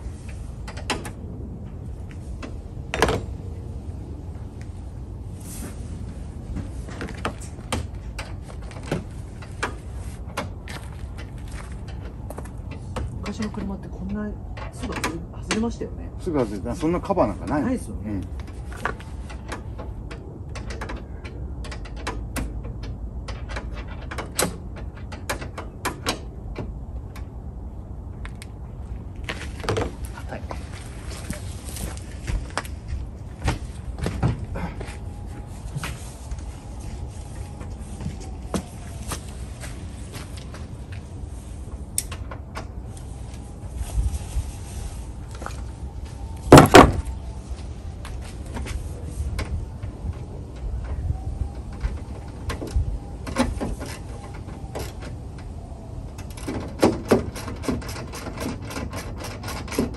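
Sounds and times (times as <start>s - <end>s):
tools clicking and clacking: 56.2s - 59.9s.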